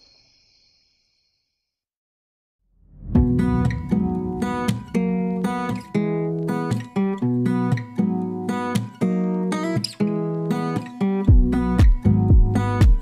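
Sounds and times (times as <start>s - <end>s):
deep bass notes: 2.8s - 6.0s
strummed acoustic guitar: 3.2s - 13.0s.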